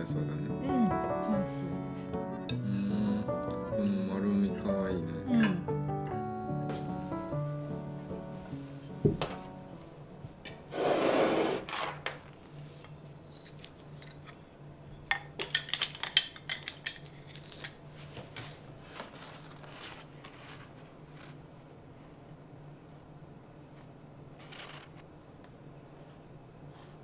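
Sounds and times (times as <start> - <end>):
cloth towel swishing: 7.8 - 9.5, 10.7 - 11.6
wooden spoons clattering: 12.9 - 17.8.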